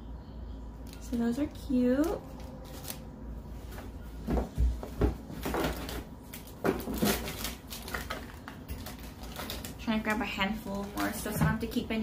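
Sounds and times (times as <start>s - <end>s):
packages knocking and rustling: 3.8s - 11.8s.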